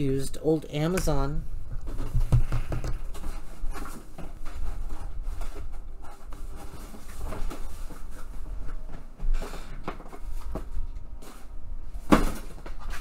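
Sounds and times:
low room rumble: 0.0s - 13.0s
objects knocking and rustling: 1.7s - 11.4s.

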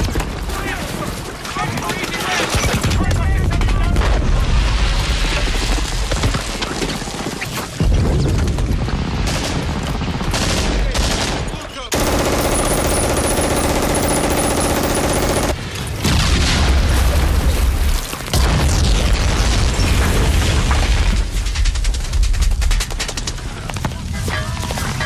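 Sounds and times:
explosions: 2.8s - 6.7s, 15.5s - 22.3s
machine-gun and rifle fire: 8.2s - 15.6s.

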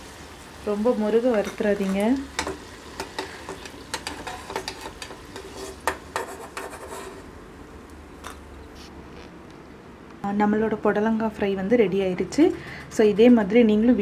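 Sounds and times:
hot oil hissing: 0.0s - 6.0s.

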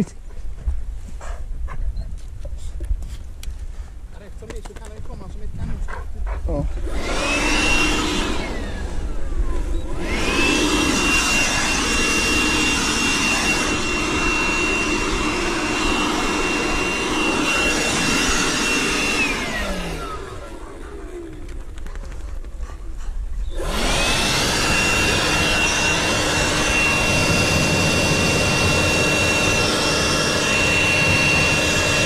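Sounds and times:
leaf blower motor whine: 6.7s - 21.7s, 23.5s - 32.0s.

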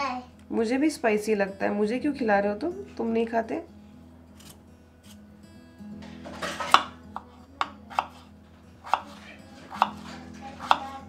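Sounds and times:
knife chopping on wooden board: 6.5s - 11.0s.

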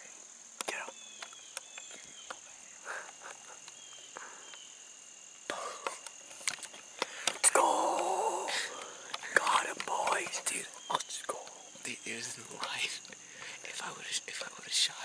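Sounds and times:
crickets and insects chirring: 0.0s - 15.0s
person whispering: 0.6s - 1.0s, 5.5s - 6.0s, 7.4s - 15.0s.

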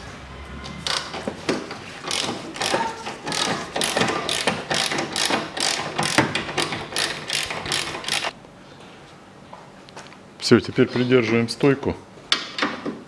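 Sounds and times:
ratchet wrench clicking: 2.1s - 8.3s.

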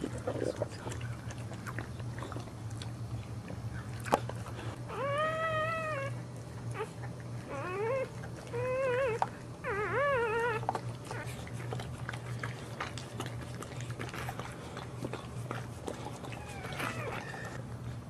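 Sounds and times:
puppy crying in high squeals: 4.9s - 6.1s, 16.4s - 17.6s.

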